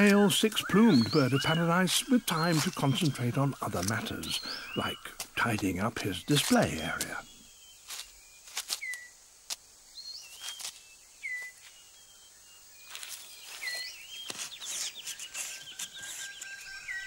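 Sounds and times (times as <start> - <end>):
fast trilling bird call: 0.0 - 3.2
whistled bird calls: 0.0 - 9.2, 9.9 - 17.0
rustling leaves and snapping twigs: 0.0 - 17.0.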